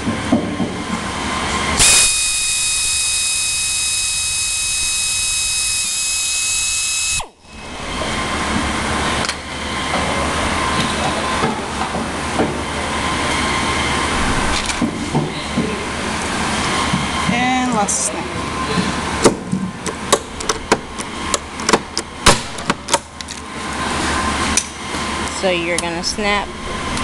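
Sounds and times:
pneumatic air drill whining: 1.8 - 8.6.

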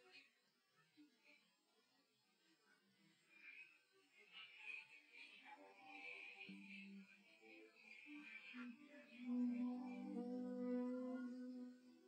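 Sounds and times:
faint high-pitched music remnants: 2.6 - 12.0.

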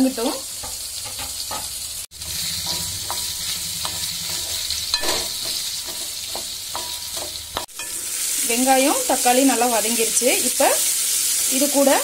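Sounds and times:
food sizzling in hot oil: 0.0 - 12.0
wooden spatula scraping a pan: 1.0 - 7.9.

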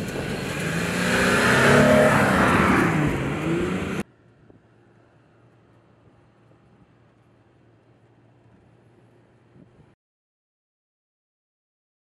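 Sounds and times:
truck engine revving: 0.0 - 4.0.

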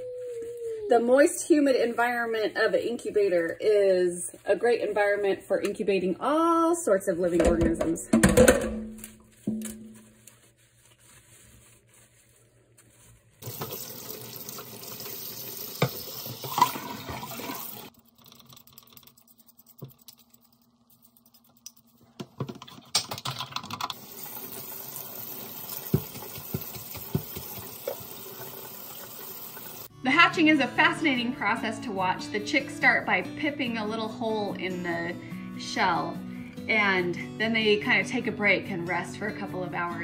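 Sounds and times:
scrubbing: 9.0 - 15.3, 16.4 - 22.7
water in steel sink: 13.4 - 29.9
plastic pieces clicking and knocking: 22.4 - 23.9.

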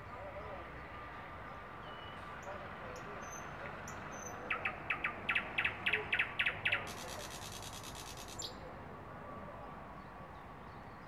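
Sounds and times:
bird singing repeated notes: 3.0 - 8.6.

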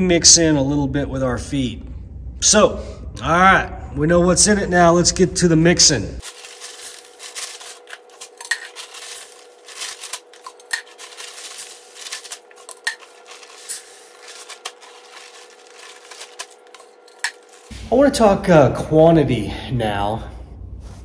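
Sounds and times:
feed sacks rustling: 6.2 - 17.7.

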